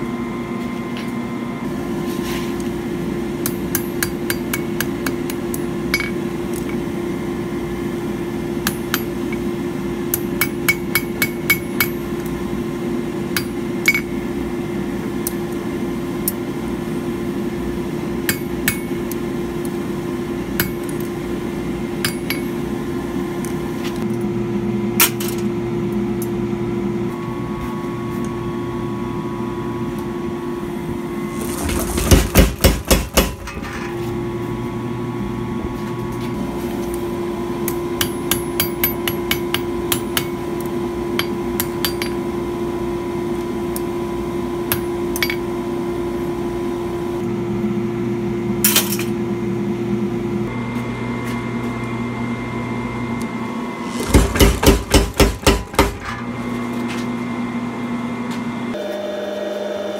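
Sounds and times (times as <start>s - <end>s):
steady machine hum: 0.0s - 58.8s
power hammer heavy blows: 31.3s - 33.5s, 53.8s - 56.2s.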